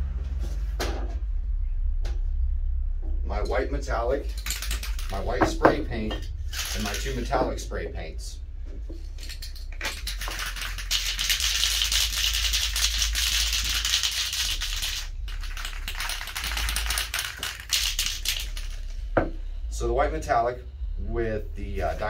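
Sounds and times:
spray paint can rattling: 4.3 - 7.5, 9.0 - 19.0.

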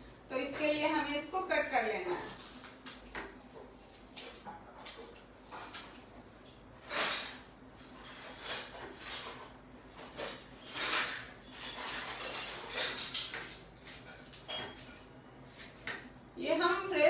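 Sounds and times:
scissors snipping leaves: 1.8 - 6.0.

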